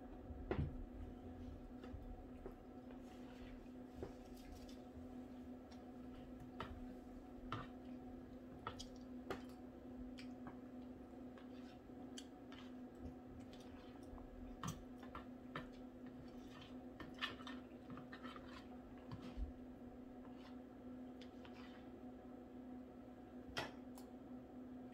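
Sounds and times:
steady low hum: 0.0s - 24.9s
soft chewing: 1.2s - 22.0s.

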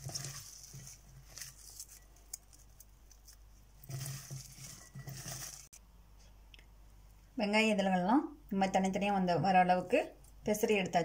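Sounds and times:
onions rustling and squishing by hand: 0.0s - 5.8s.

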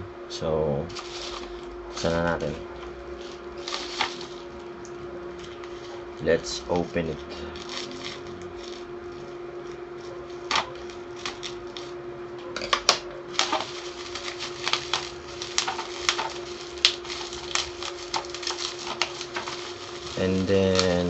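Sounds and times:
bubble wrap crinkling and crackling: 0.9s - 12.0s, 12.7s - 21.0s.

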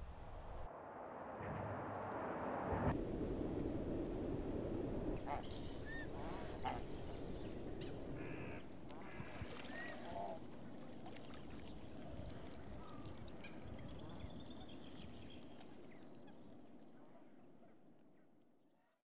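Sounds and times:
outdoor background noise: 0.0s - 19.0s
ducks calling: 5.2s - 11.9s.

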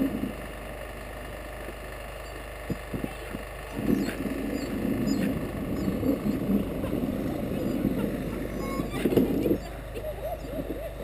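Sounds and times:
sled rattling: 2.6s - 11.0s.

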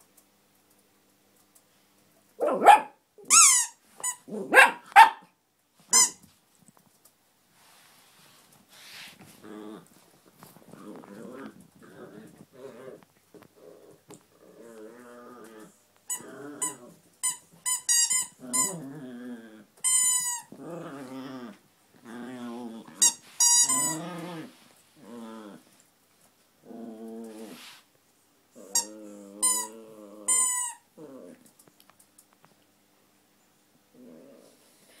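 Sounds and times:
squeaky toy squeaking: 3.3s - 4.2s, 5.9s - 6.2s, 16.6s - 18.7s, 19.9s - 20.5s, 23.0s - 24.0s, 30.3s - 30.8s
dog growling: 9.3s - 17.0s, 18.4s - 19.7s, 20.4s - 25.8s, 26.6s - 27.7s, 28.5s - 31.5s, 33.9s - 35.0s.

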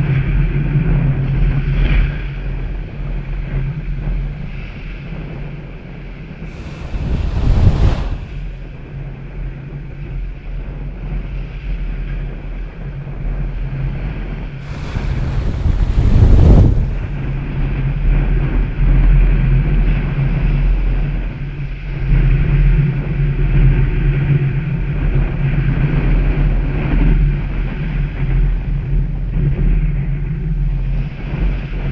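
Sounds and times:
wind on microphone: 0.0s - 31.9s
low hum: 6.0s - 9.4s, 14.6s - 18.5s
small waves breaking on sand: 6.3s - 8.6s, 14.6s - 17.2s.

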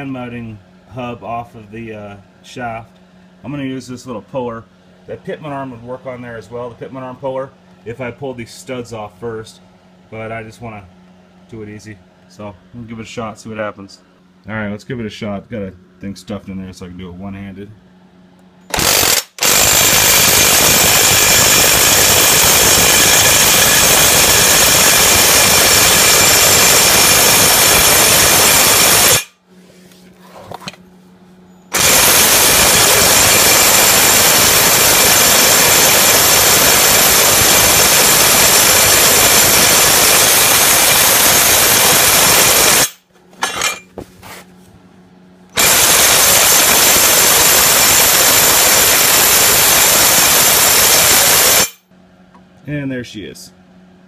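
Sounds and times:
impact wrench running: 18.7s - 29.4s, 31.7s - 44.0s, 45.5s - 51.8s.

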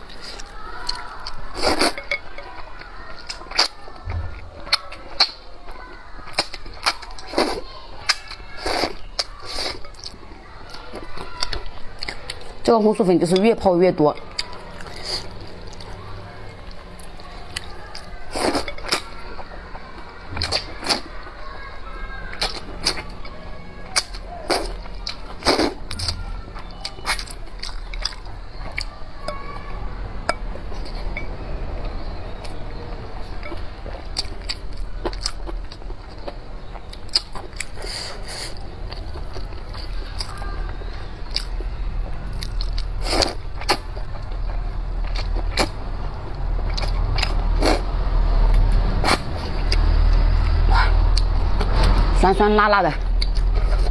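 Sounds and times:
wet chewing: 0.0s - 29.6s, 30.2s - 52.1s, 52.9s - 53.9s.

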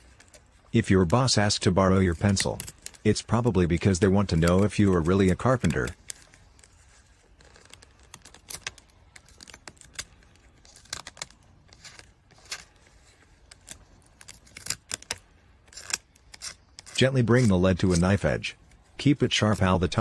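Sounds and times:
knife blade shaving pencil wood: 13.6s - 18.4s.

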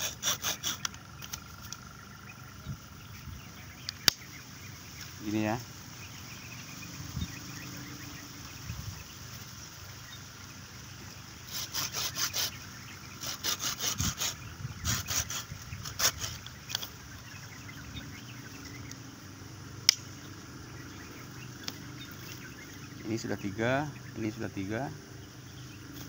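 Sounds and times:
hand saw cutting stem: 0.0s - 1.4s, 11.5s - 12.6s, 13.2s - 16.9s
sharp click: 3.8s - 4.3s, 19.8s - 20.1s.

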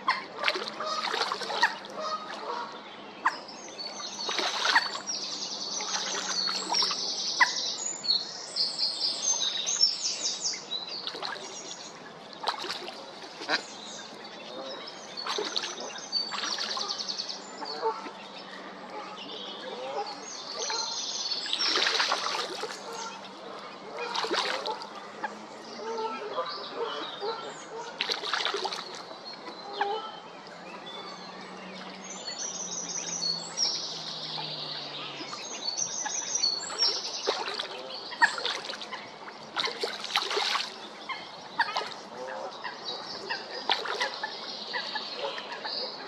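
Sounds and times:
water splashes and drips: 0.0s - 2.8s, 3.8s - 7.5s, 10.9s - 14.2s, 15.2s - 19.0s, 20.6s - 25.4s, 27.8s - 29.8s, 31.6s - 45.8s.

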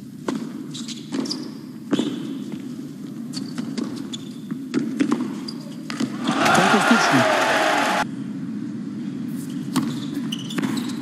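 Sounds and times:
shoes squeaking on court: 0.2s - 6.4s, 9.3s - 11.0s
tennis ball bouncing: 3.5s - 6.2s, 9.7s - 11.0s
low arena hum: 6.1s - 10.3s.

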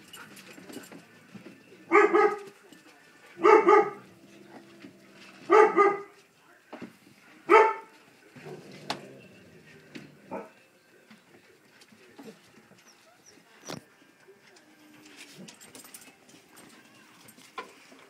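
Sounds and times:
dog barking: 1.9s - 2.5s, 3.4s - 4.1s, 5.4s - 6.2s, 7.5s - 7.9s, 10.3s - 10.6s.

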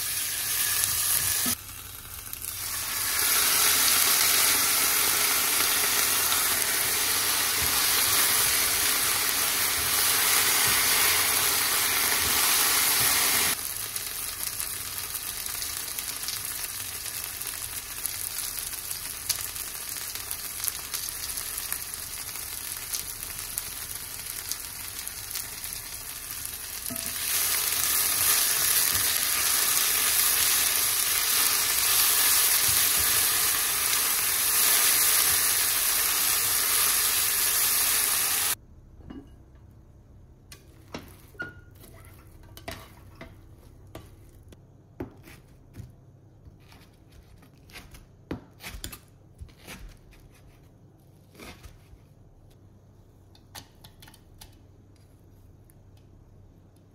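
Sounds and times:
vegetables sizzling in a frying pan: 0.0s - 38.6s.

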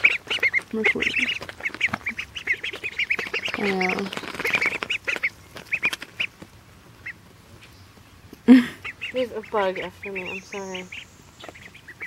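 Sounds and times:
ducklings peeping: 0.0s - 12.0s
pecking on plastic plate: 0.1s - 6.5s.

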